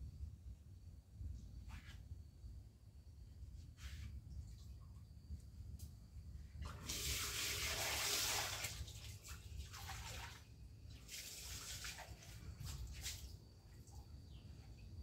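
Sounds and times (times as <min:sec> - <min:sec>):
water running from a tap and splashing: 0:06.7 - 0:13.3.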